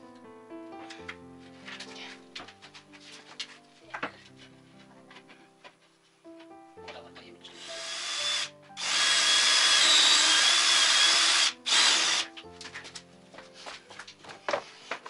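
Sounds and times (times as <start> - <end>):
power drill whine: 7.6 - 12.3.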